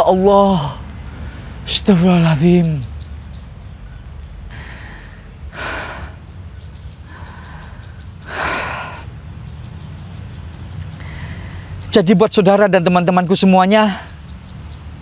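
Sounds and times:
man gasping breaths: 4.5 - 6.2, 7.1 - 9.1, 11.0 - 11.8.

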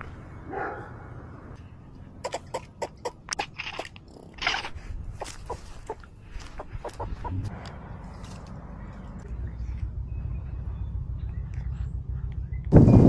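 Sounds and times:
clicks and crunches in dry leaves: 4.4 - 9.8.

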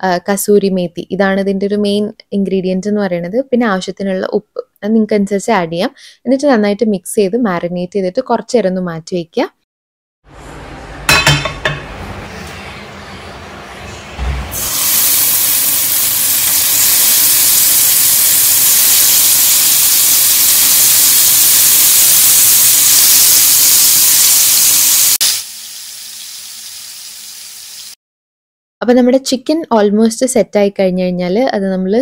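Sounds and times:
chicken sizzling in hot oil: 14.4 - 28.0.

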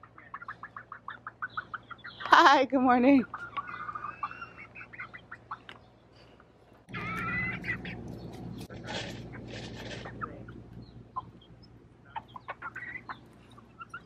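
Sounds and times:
young chickens clucking: 0.0 - 14.0
chick pitched call: 6.9 - 8.0
chickens pecking food from bowl: 6.9 - 11.4.

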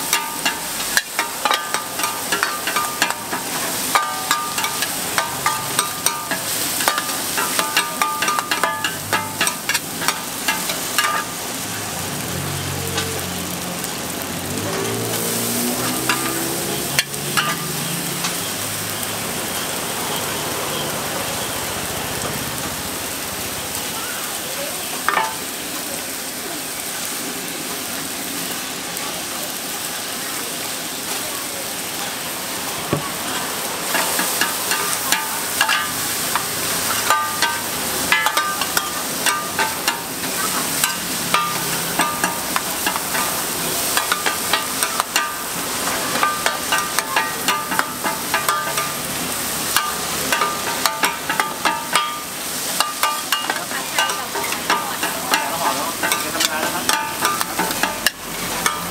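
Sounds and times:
metal spatulas scraping pan: 0.0 - 11.4, 14.7 - 18.5, 33.8 - 58.9
noodles sizzling on pan: 0.0 - 58.9.

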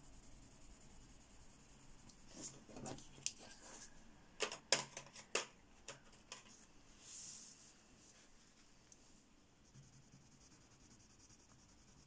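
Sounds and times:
pencils clicking and knocking: 4.4 - 6.6.

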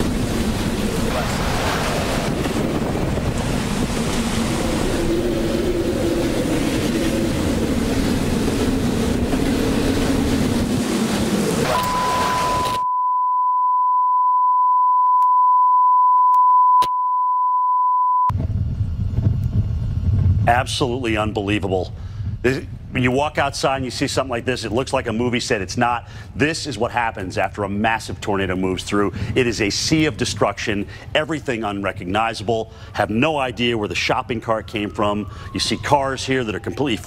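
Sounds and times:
rumbling tornado wind: 0.0 - 12.6, 18.3 - 37.0
steady test tone: 11.7 - 18.4.

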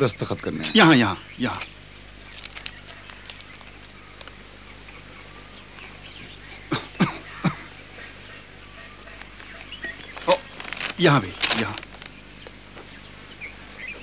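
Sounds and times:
person coughing: 6.7 - 7.8.

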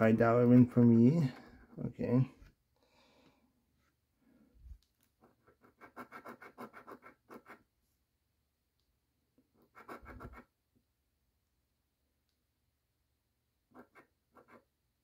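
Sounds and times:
coin scratching lottery ticket: 5.2 - 7.6, 9.6 - 10.5, 13.7 - 14.7.

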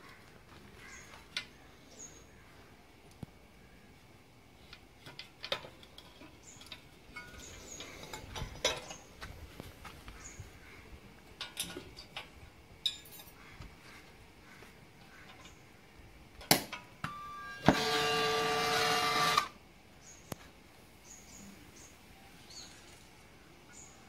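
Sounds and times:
metal clinks and knocks: 11.4 - 13.4.

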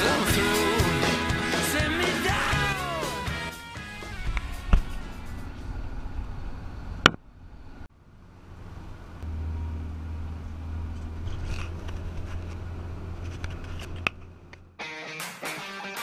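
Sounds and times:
van engine and road noise: 3.8 - 14.8.

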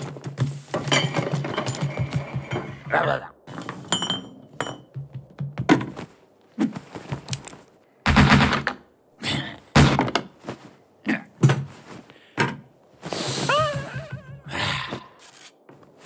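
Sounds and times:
wooden thunks and knocks: 3.6 - 6.2, 8.0 - 8.9, 9.7 - 10.4, 11.4 - 12.7.

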